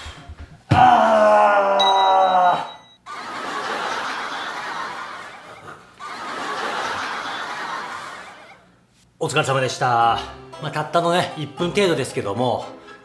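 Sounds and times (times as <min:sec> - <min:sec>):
man groaning loudly: 0:00.7 - 0:02.8.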